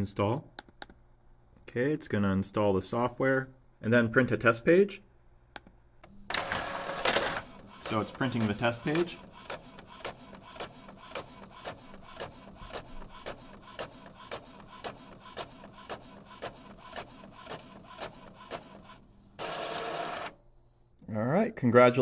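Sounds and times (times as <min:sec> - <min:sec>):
printer ticking: 0:06.3 - 0:20.4
printer whirring: 0:06.3 - 0:20.4.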